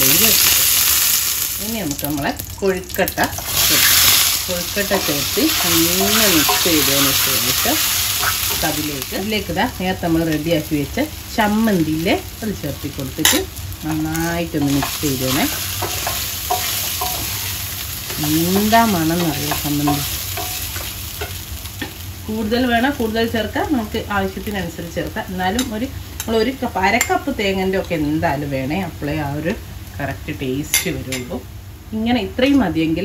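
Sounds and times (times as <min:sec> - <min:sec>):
food sizzling in a pan: 0:00.0 - 0:31.6
wooden spatula squeaking: 0:05.0 - 0:08.7.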